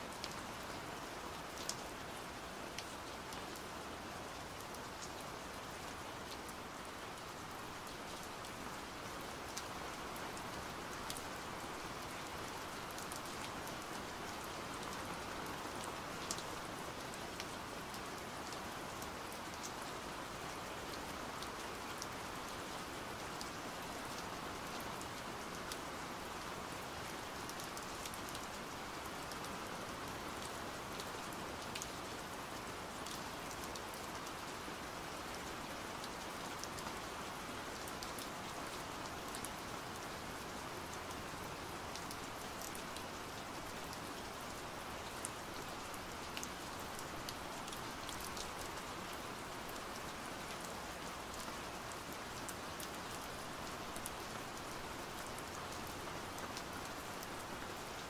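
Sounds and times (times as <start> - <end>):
steady rain hiss: 0.0 - 58.0.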